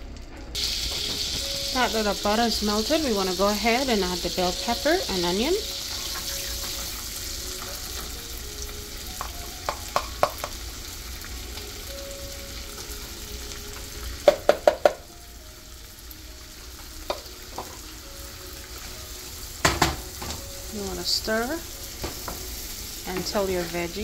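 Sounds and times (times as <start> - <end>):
vegetables sizzling in a pan: 0.6 - 24.0
spoon knocking on pan: 9.2 - 10.6, 14.2 - 15.1, 17.1 - 17.8, 19.6 - 20.4, 22.0 - 22.5.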